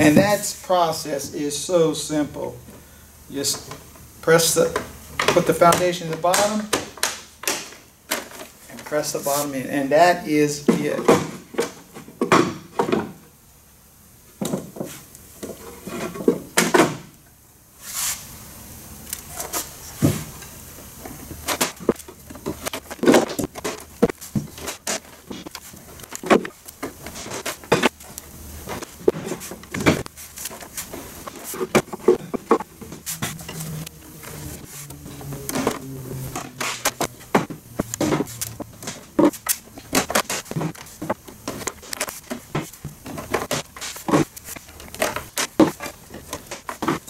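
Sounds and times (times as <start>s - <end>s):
wood scraping: 21.4s - 47.0s.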